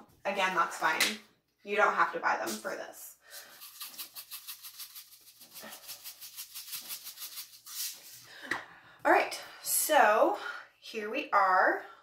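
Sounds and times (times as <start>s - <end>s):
seeds rattling in shaken container: 3.3s - 8.2s.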